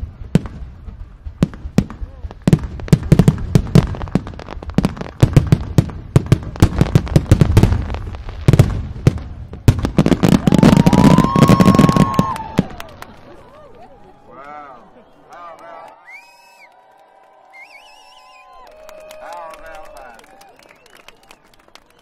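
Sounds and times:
fireworks bangs and crackles: 0.0s - 14.0s
firework whistle: 10.3s - 13.4s, 16.0s - 16.8s, 17.5s - 18.7s.

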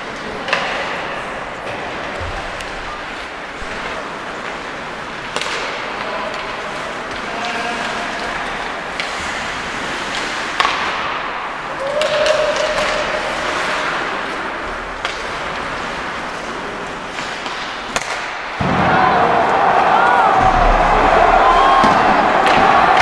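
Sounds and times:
stick and puck hitting boards: 5.3s - 8.0s, 10.1s - 13.6s, 15.0s - 15.7s, 17.1s - 18.9s, 20.4s - 23.0s.

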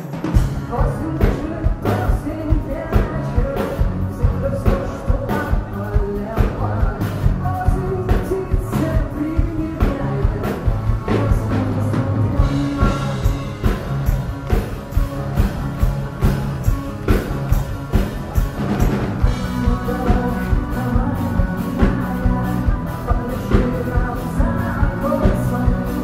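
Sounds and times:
drum kit beat: 0.0s - 26.0s
live rock band playing: 0.0s - 26.0s
woman singing: 0.7s - 13.6s, 19.4s - 26.0s.

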